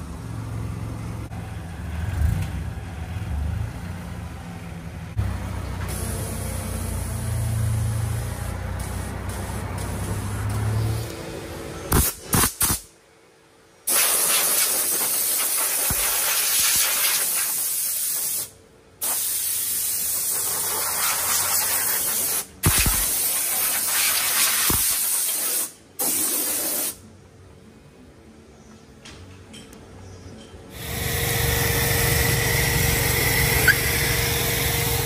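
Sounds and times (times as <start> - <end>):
hose nozzle spraying bursts: 13.9 - 27.0.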